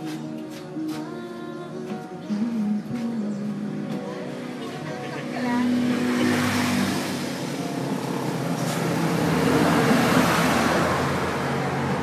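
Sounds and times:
steady engine hum: 0:02.3 - 0:12.0
motor vehicle passing: 0:04.2 - 0:12.0.

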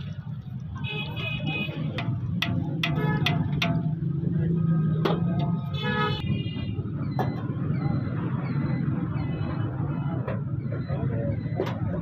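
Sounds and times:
street traffic rumble: 0:00.0 - 0:12.0
vehicle horn toot: 0:05.7 - 0:06.7.

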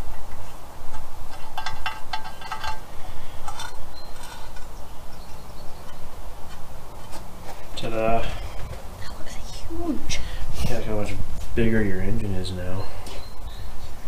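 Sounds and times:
steady low rumble: 0:00.0 - 0:12.2
metal lid clinking: 0:00.9 - 0:04.8.

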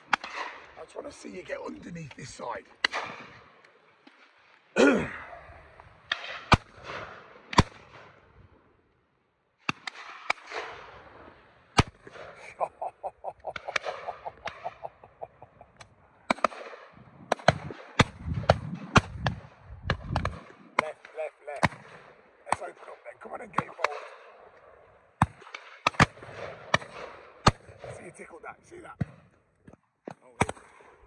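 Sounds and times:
shotgun shots: 0:02.8 - 0:03.5, 0:06.0 - 0:08.3, 0:09.6 - 0:12.9, 0:16.3 - 0:24.5, 0:25.2 - 0:28.1
fast string of short calls: 0:12.4 - 0:15.8.

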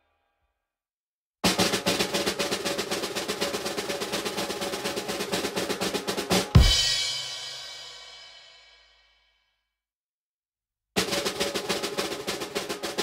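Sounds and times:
snare drum roll: 0:01.4 - 0:08.6, 0:11.0 - 0:13.0
bass drum and cymbal crash: 0:04.4 - 0:08.9.

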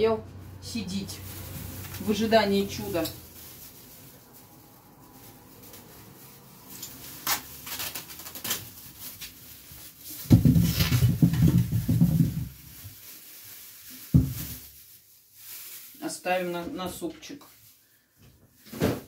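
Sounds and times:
low rustling and handling: 0:01.0 - 0:15.9.

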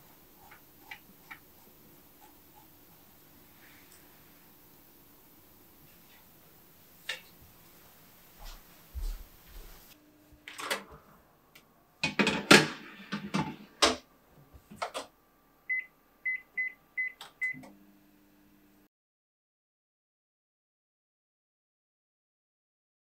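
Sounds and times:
oven humming: 0:00.0 - 0:18.9
metal baking tray clattering: 0:12.0 - 0:13.6.

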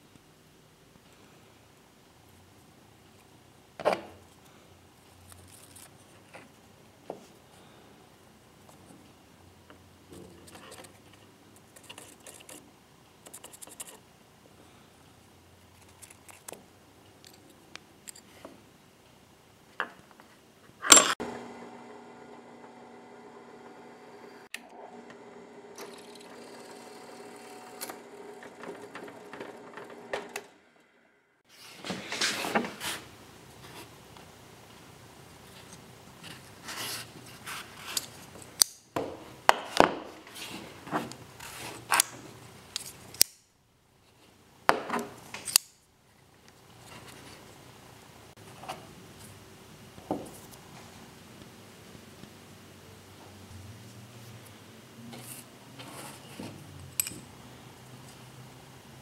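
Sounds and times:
drill press hum: 0:21.2 - 0:31.1.

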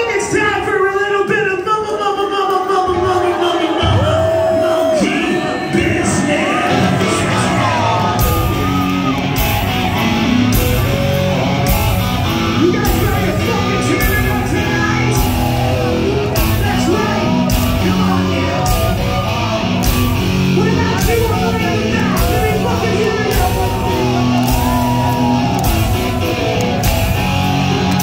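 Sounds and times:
yelled rock vocals: 0:02.9 - 0:28.0
hard rock band playing: 0:05.6 - 0:28.0.

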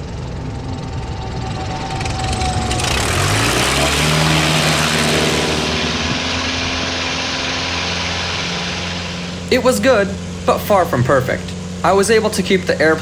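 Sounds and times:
rush of air and rolling noise: 0:00.0 - 0:10.4
propeller plane engine idling: 0:00.0 - 0:13.0.

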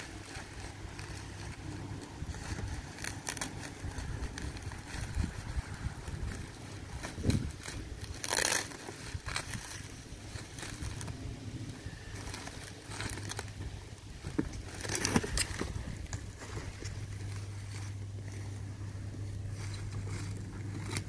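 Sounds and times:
wind rumble on microphone: 0:00.0 - 0:08.2, 0:09.0 - 0:17.3
plastic wrapping crinkling: 0:00.0 - 0:21.0.

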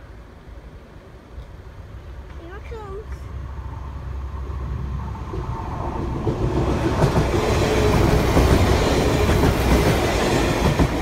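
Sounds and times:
diesel train passing rumble: 0:00.0 - 0:11.0
train whine: 0:00.0 - 0:11.0
train wheel knocks: 0:06.2 - 0:11.0.

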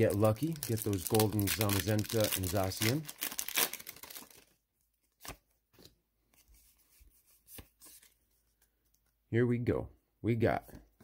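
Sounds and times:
trading cards rustling: 0:00.0 - 0:09.1.

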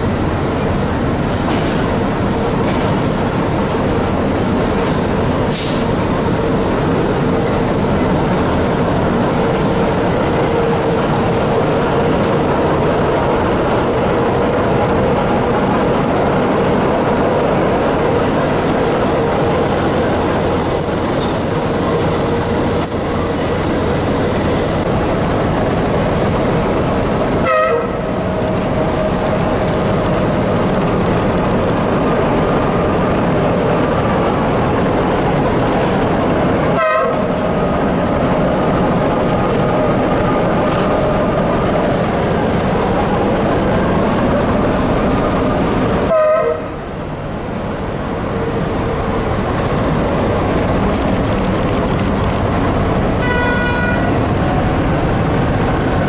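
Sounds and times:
diesel locomotive running: 0:00.0 - 0:56.0
locomotive horn blast: 0:27.4 - 0:28.2, 0:36.7 - 0:37.3, 0:46.1 - 0:46.8, 0:53.2 - 0:54.2.

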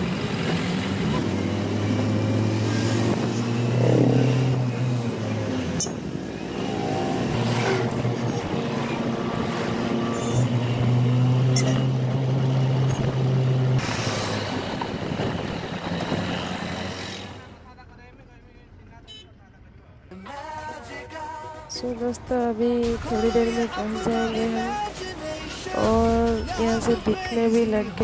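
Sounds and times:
traffic and wind rush: 0:00.0 - 0:17.6
vehicle engine drone: 0:00.0 - 0:20.8, 0:21.7 - 0:28.0.

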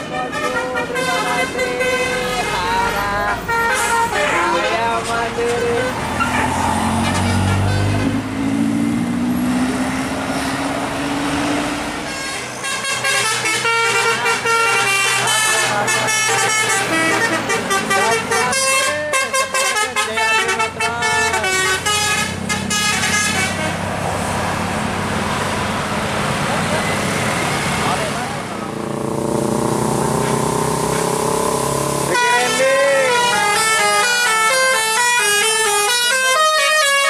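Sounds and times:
musical bus horn tune: 0:00.0 - 0:08.2, 0:12.0 - 0:23.9, 0:29.5 - 0:37.0
bus engine running: 0:00.0 - 0:37.0
road noise: 0:00.0 - 0:37.0.

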